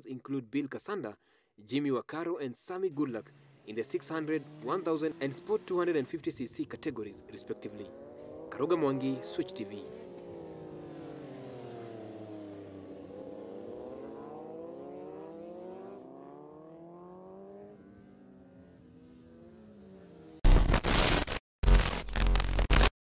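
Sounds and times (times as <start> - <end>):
racing motorcycles revving: 3.0 - 20.4.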